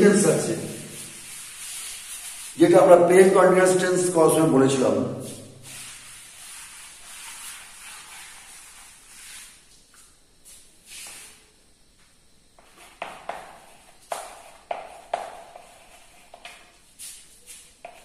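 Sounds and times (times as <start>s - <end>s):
chalk tapping and scraping: 0.0s - 3.2s, 5.2s - 11.4s, 12.6s - 18.0s
cloth rubbing on chalkboard: 0.0s - 3.4s, 5.2s - 9.8s, 10.5s - 11.4s, 12.6s - 18.0s.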